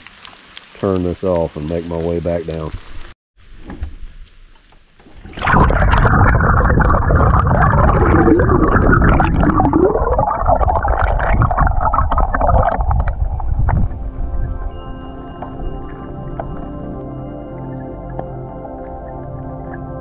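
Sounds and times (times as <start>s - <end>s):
muffled underwater churning: 5.0s - 14.7s.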